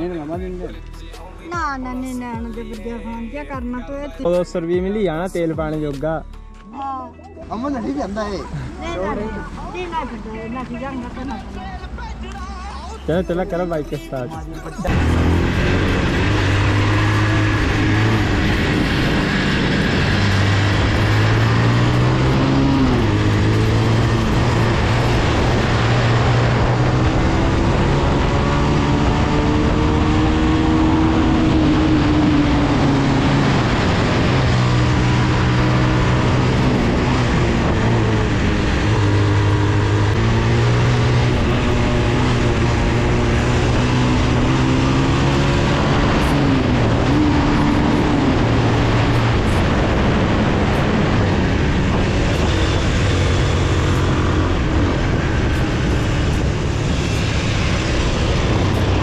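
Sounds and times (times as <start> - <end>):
motorcycle engine revving: 14.8 - 59.0
wind noise on microphone: 15.8 - 59.0.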